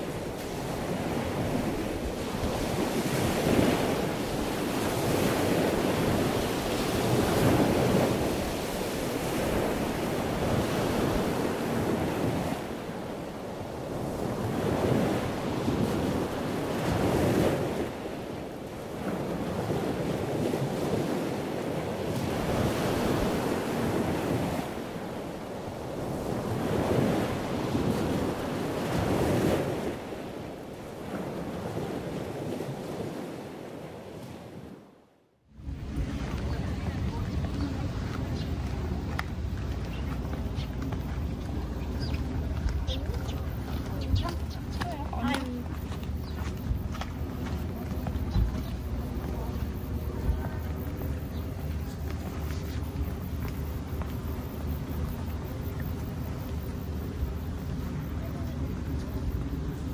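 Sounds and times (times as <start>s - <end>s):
ocean waves breaking: 0.0s - 59.9s
wind rumbling on microphone: 0.0s - 59.9s.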